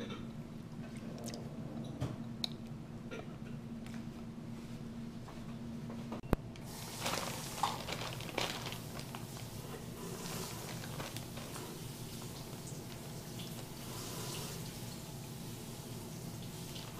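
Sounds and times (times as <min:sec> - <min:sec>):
low steady hum: 0:00.0 - 0:16.9
plastic bag rustling: 0:06.6 - 0:14.2
soft wet handling of food: 0:06.6 - 0:14.8.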